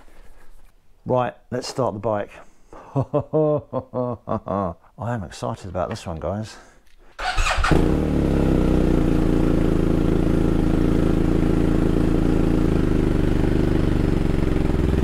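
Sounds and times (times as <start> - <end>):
motorcycle engine starting and idling: 7.2 - 15.0.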